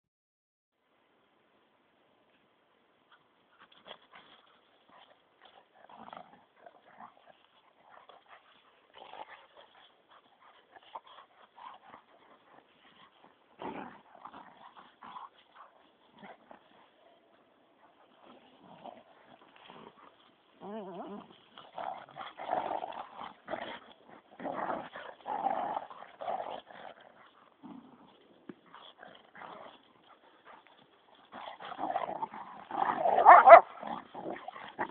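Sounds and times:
dogs play-fighting vocalising: 0:17.9 - 0:34.9.

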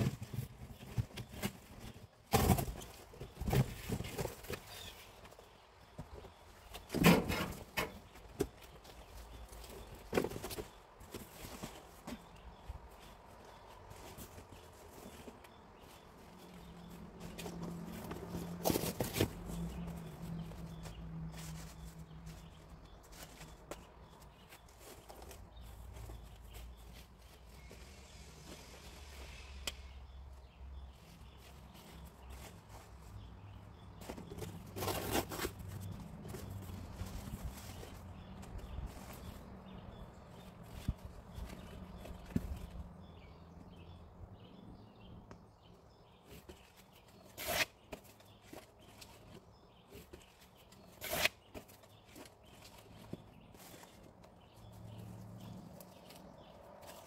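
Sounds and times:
cardboard rustling: 0:00.0 - 0:28.9, 0:31.1 - 0:42.9
cardboard scraping: 0:13.9 - 0:29.2, 0:30.8 - 0:39.5.

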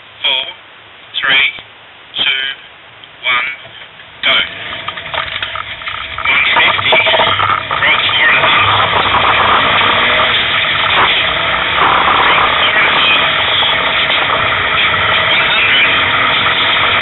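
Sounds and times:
car engine and road noise: 0:03.0 - 0:17.0.

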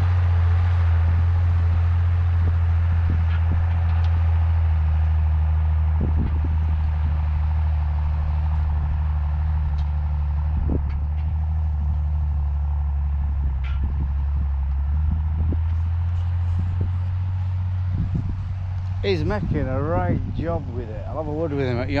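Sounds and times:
engine humming steadily: 0:00.0 - 0:22.0.

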